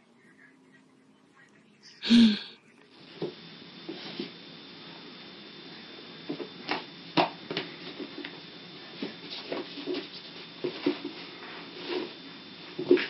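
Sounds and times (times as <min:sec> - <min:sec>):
faint high whine: 0:00.0 - 0:13.0
steady background hiss: 0:00.0 - 0:13.0.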